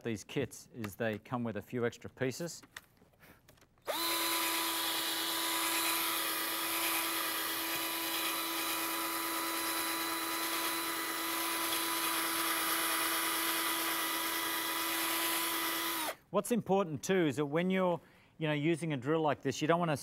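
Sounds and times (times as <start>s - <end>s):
drill motor whine: 3.9s - 16.2s.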